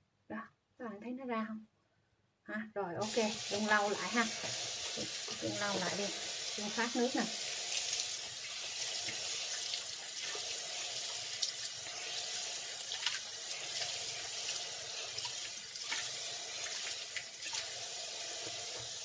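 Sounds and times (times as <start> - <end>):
tap water running into sink: 3.0 - 19.0
water splashing onto face: 12.8 - 17.8.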